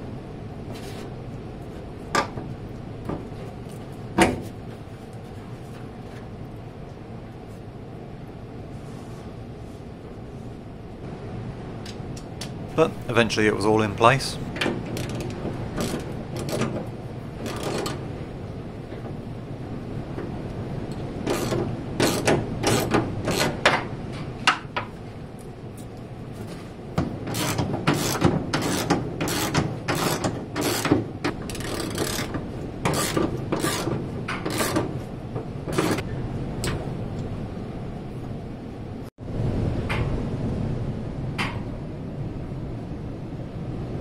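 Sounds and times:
ratchet wrench clicking: 31.5 - 32.3.

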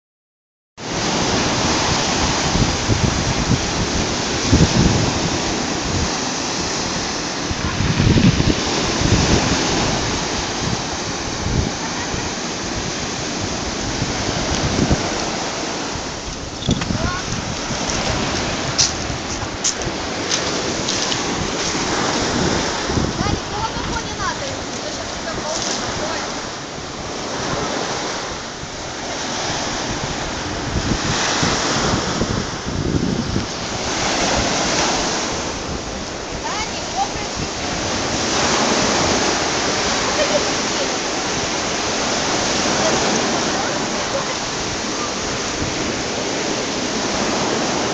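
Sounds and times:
surf breaking on sand beach: 0.8 - 47.9
wind rumble on microphone: 0.9 - 47.9.

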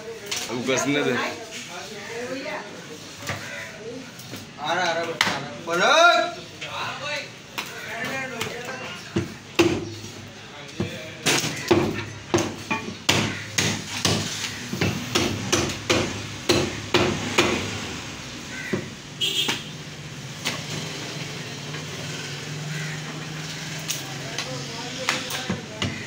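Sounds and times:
cleaver chopping meat on wooden block: 9.2 - 9.9, 10.8 - 17.7.

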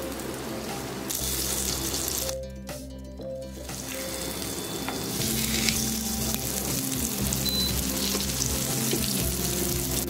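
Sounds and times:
fish sizzling in hot oil: 1.0 - 2.4, 3.7 - 10.0
short crackles of frying: 5.1 - 10.0.

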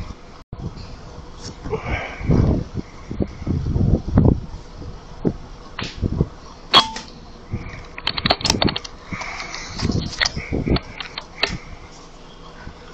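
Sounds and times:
rifle handling clicks and knocks: 7.8 - 11.6.

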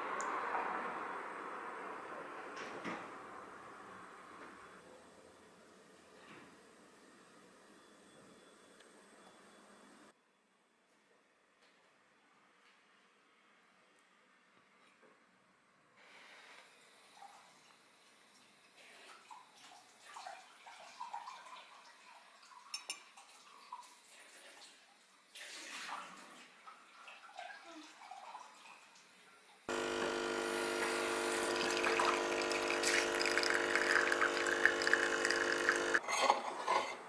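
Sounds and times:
coffee running into a cup: 29.7 - 36.0
espresso machine pump humming: 29.7 - 36.0.

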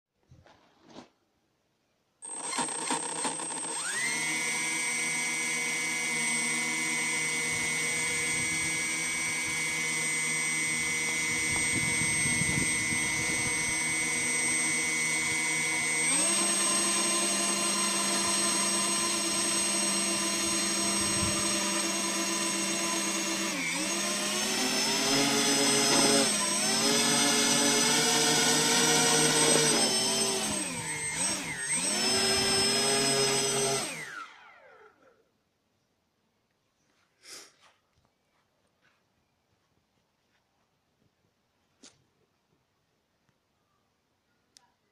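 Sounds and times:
electric motors and propellers whining: 2.2 - 35.3.

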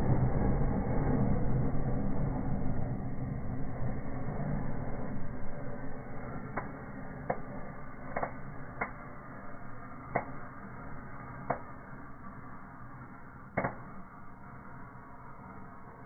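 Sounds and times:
fire burning: 0.0 - 16.0
sharp cracks and pops: 6.4 - 12.3, 13.5 - 14.4.

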